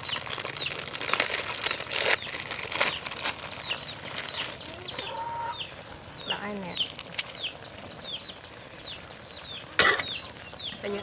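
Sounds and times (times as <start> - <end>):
plastic packet crinkling: 0.0 - 5.0, 6.8 - 7.8
falling bird chirps: 0.0 - 11.0.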